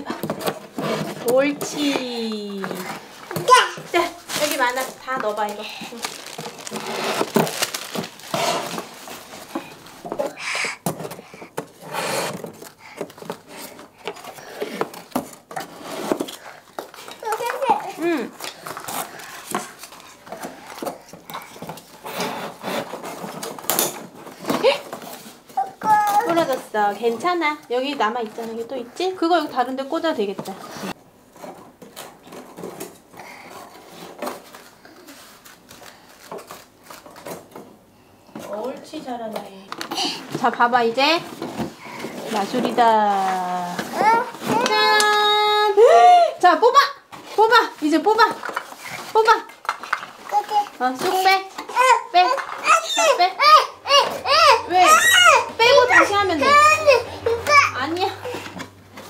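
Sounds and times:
rustling handling noises: 0.0s - 59.0s.

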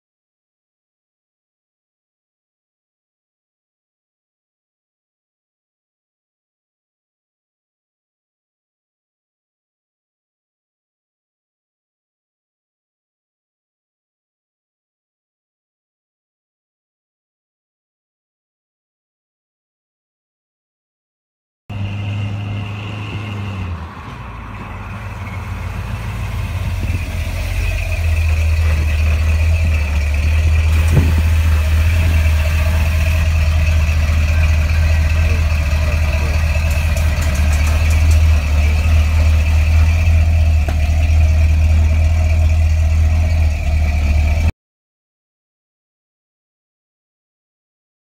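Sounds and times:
car engine idling: 21.7s - 44.5s.

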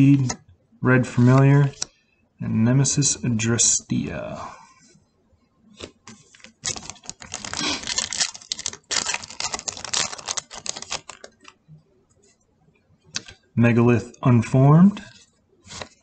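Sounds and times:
foil wrapper crinkling and tearing: 6.3s - 11.6s.

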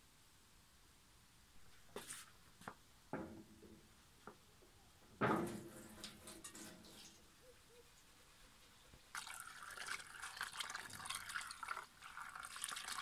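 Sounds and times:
metal pot clanking: 5.2s - 7.2s.

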